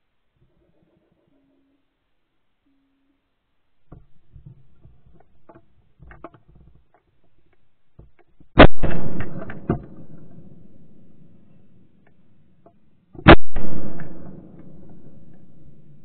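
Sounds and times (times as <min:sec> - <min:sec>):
shotgun shot echoing: 0:08.6 - 0:11.9, 0:13.2 - 0:16.0.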